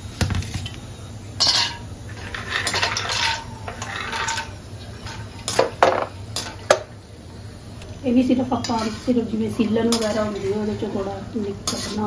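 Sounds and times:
spoon scraping in a steel pan: 0:01.4 - 0:05.7, 0:08.5 - 0:12.0
steel plates clinking: 0:01.4 - 0:06.6.

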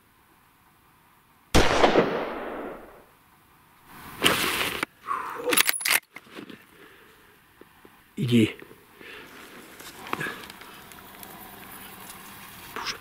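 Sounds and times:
loud burst: 0:01.6 - 0:03.0
suppressed rifle shot: 0:01.6 - 0:03.1.

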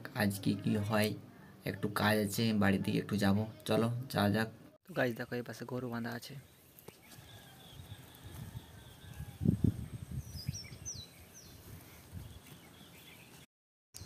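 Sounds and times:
birds chirping: 0:06.2 - 0:14.0.

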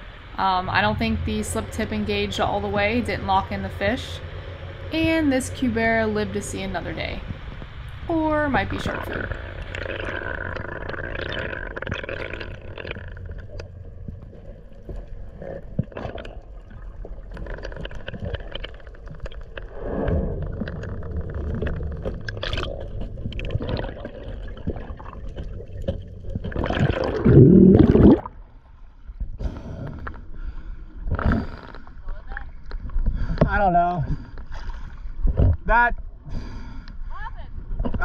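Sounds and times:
loud low rush of water: 0:00.0 - 0:09.9
underwater water wash: 0:00.0 - 0:38.0.

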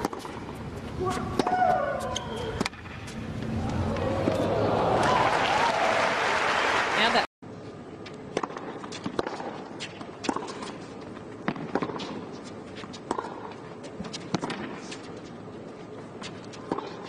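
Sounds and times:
tennis ball hit by rackets: 0:00.0 - 0:03.0, 0:08.3 - 0:10.8, 0:11.4 - 0:12.3, 0:12.9 - 0:15.0, 0:16.2 - 0:17.0.

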